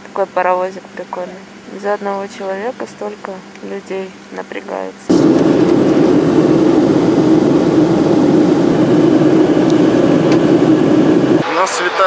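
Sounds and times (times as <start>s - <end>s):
airliner engine noise: 5.1s - 12.0s.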